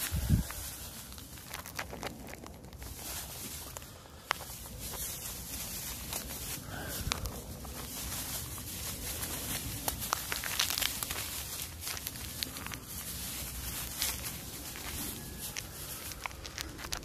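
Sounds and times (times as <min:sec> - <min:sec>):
rustling leaves and stems: 0:00.0 - 0:17.0
steady low rumble: 0:00.0 - 0:17.0.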